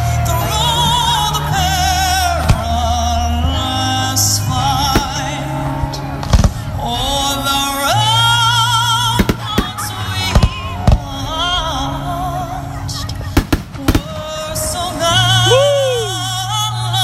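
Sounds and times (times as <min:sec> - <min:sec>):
music with singing: 0:00.0 - 0:17.0
fireworks bursting: 0:04.6 - 0:11.8, 0:13.1 - 0:15.4.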